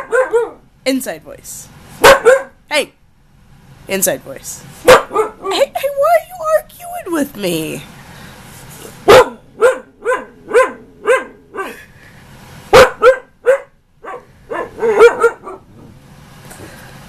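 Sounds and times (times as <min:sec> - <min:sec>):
husky barking and howling: 0:00.0 - 0:00.7, 0:04.9 - 0:05.7, 0:09.0 - 0:11.8, 0:12.8 - 0:15.7.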